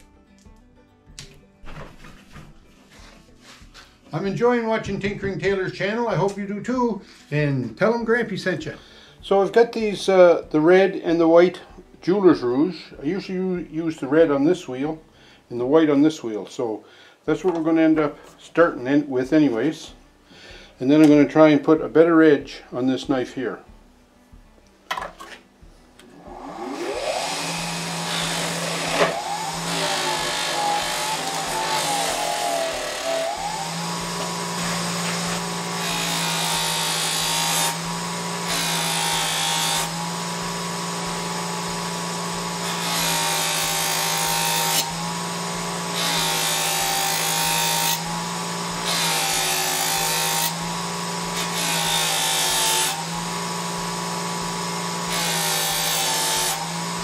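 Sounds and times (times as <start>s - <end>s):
bench buffer motor humming: 26.0s - 57.0s.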